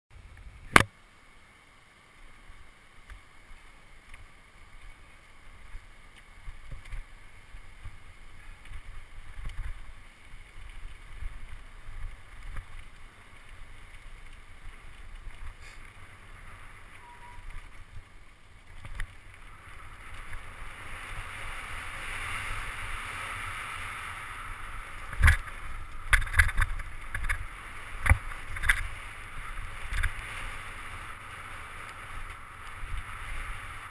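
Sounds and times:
wind buffeting camera: 5.6 - 33.9.

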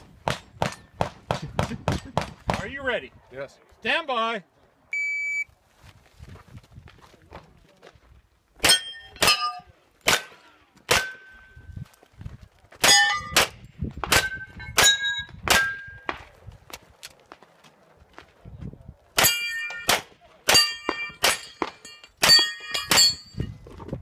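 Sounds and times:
steel targets ringing: 8.6 - 9.7, 12.8 - 13.4, 14.2 - 16.1, 19.2 - 23.4
pistol shots: 10.0 - 11.3, 19.2 - 23.1.

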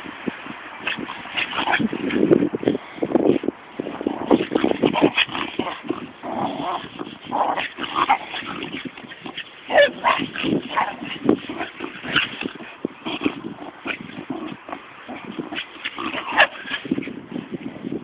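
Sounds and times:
dogs giving high-pitched cries: 7.5 - 12.4.

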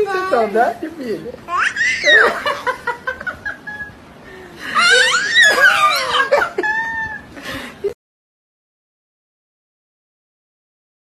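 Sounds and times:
baby squealing and giggling: 1.5 - 2.5, 4.7 - 7.3.

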